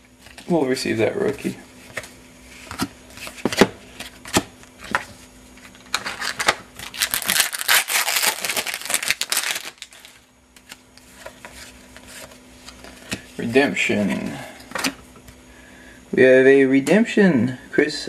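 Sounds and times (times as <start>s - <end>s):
cards being flipped through: 1.2s - 13.3s
card pack wrapper tearing open: 5.9s - 10.2s.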